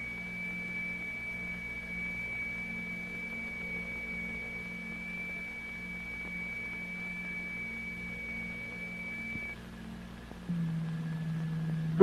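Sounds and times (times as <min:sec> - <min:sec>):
high-pitched test tone: 0:00.0 - 0:09.6
low hum: 0:00.0 - 0:12.0.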